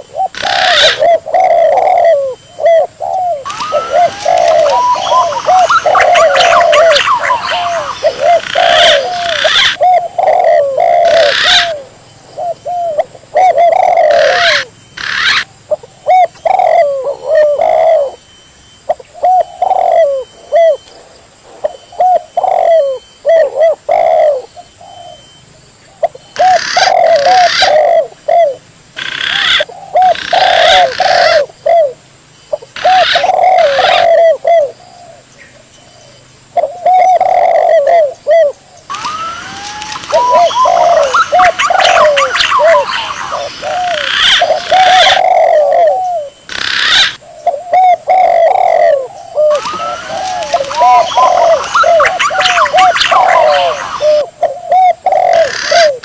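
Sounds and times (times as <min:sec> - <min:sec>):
doves cooing: 0:00.0 - 0:18.3, 0:18.9 - 0:20.9, 0:21.6 - 0:25.3, 0:26.0 - 0:56.0
harsh bird calls: 0:00.0 - 0:20.9, 0:26.0 - 0:56.0
higher sliding bird notes: 0:03.4 - 0:09.8, 0:38.9 - 0:45.3, 0:49.5 - 0:54.2.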